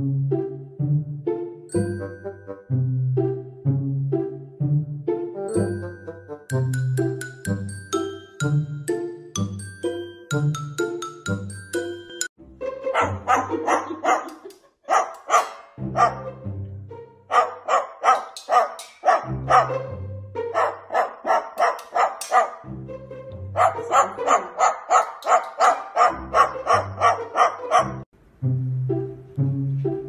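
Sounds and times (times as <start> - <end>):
background music with bass: 0.0 - 13.8, 19.2 - 20.7, 22.6 - 24.4, 26.1 - 30.0
yappy bark-like sounds: 12.9 - 16.4, 17.3 - 19.9, 20.5 - 22.7, 23.5 - 28.1.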